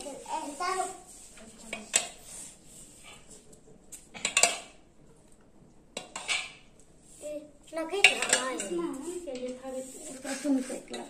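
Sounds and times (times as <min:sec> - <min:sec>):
metal spoon clinking on plates: 0:04.2 - 0:04.8, 0:08.0 - 0:08.8.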